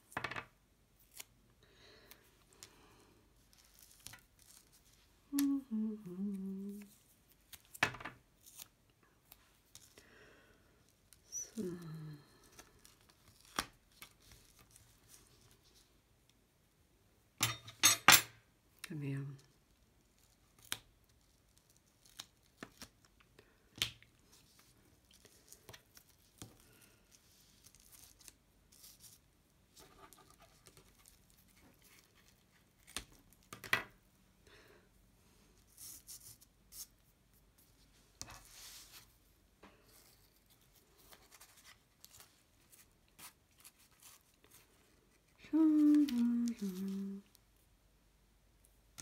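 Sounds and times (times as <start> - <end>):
person humming: 5.3 - 7.0, 11.3 - 12.7, 45.3 - 47.4
paper rustling: 39.8 - 47.0.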